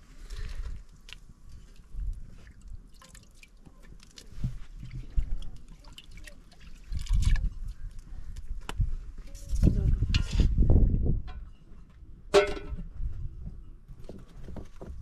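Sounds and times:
liquid dripping and trickling: 0:01.0 - 0:08.0.

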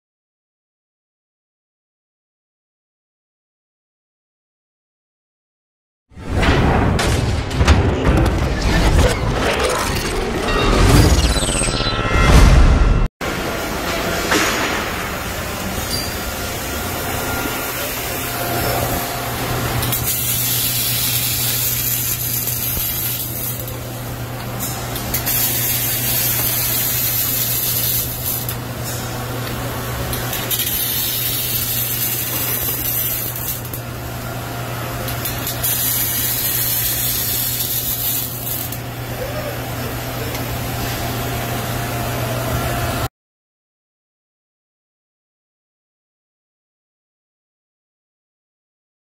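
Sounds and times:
steady electrical hum: 0:13.2 - 0:43.1
welding arc hissing and crackling: 0:14.6 - 0:34.1, 0:34.8 - 0:40.6.

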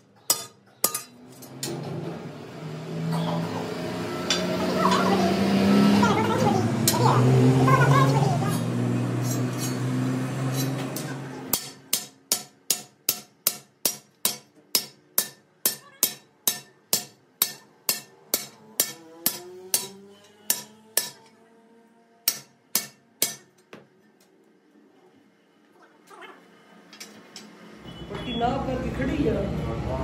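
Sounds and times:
hammer striking metal: 0:00.0 - 0:01.9, 0:04.2 - 0:05.2, 0:08.5 - 0:21.4, 0:22.2 - 0:23.8.

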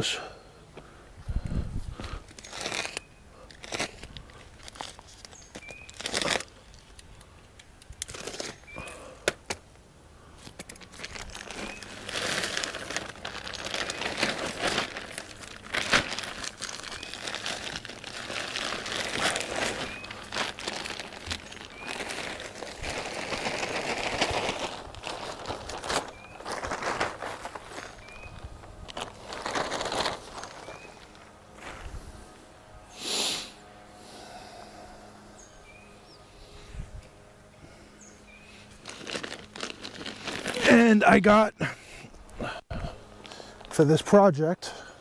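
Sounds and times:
plastic bags crinkling: 0:02.1 - 0:09.1, 0:10.4 - 0:31.8, 0:38.6 - 0:41.4.

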